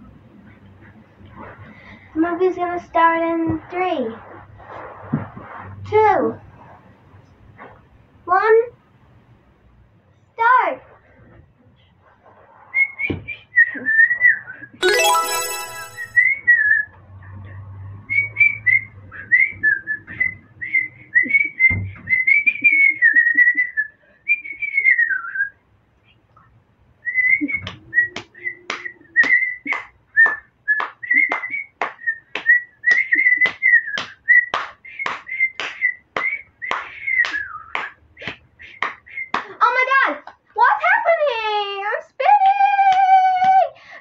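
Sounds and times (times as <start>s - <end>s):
whistled tune: 14.8s - 16.7s.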